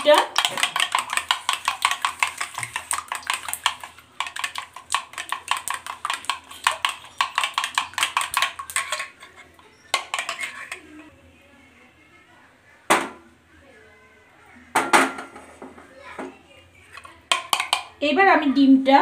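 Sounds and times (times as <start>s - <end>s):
spoon beating eggs in a bowl: 0.0s - 11.1s, 16.8s - 18.0s.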